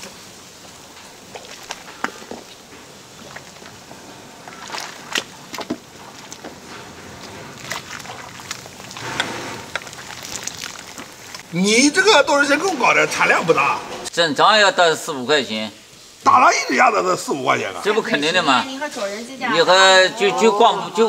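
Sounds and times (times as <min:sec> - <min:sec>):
brine splashing and dripping: 0:00.0 - 0:11.5.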